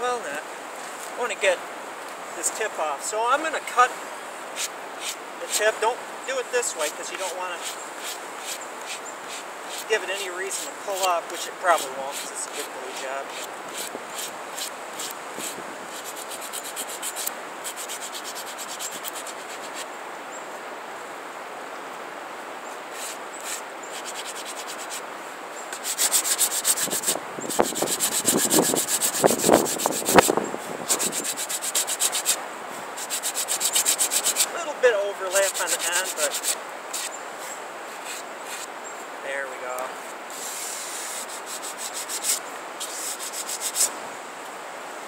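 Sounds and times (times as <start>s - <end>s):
sandpaper sanding wood: 4.6s - 5.8s, 6.8s - 19.9s, 22.9s - 25.0s, 25.7s - 32.4s, 33.0s - 34.5s, 35.3s - 37.1s, 37.9s - 38.7s, 40.3s - 43.9s.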